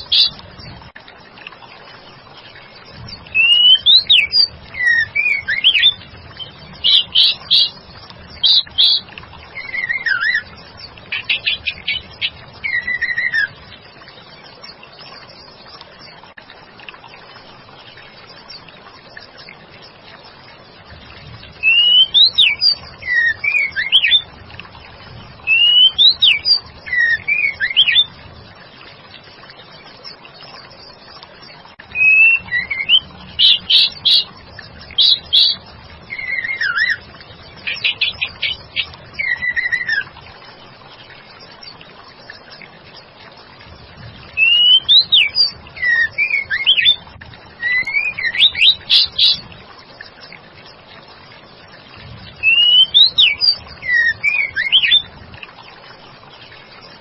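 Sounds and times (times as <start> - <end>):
bird whistled calls: 3.3 - 6.0, 9.6 - 10.4, 12.6 - 13.5, 21.6 - 24.2, 25.5 - 28.1, 32.0 - 34.3, 35.0 - 37.0, 44.4 - 47.0, 47.6 - 49.4, 52.4 - 55.0.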